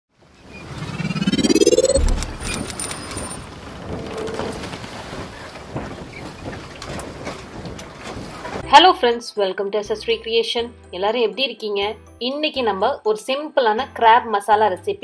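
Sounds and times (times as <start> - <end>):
rising whoosh: 0.5 - 3.4
low boom: 0.7 - 2.8
scattered clicks: 1.6 - 3.4.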